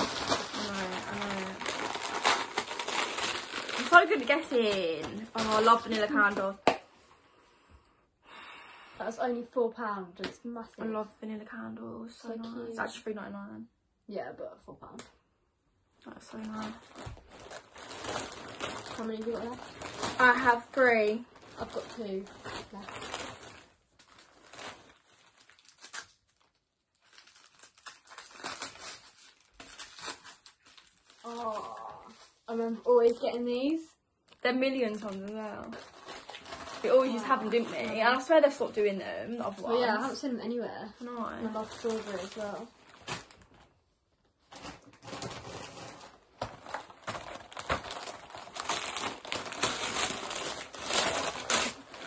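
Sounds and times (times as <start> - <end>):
plastic bag rustling: 0.0 - 6.8, 16.1 - 33.8, 34.4 - 43.8, 44.4 - 52.0
gift wrapping crinkling: 0.0 - 7.0, 16.0 - 52.0.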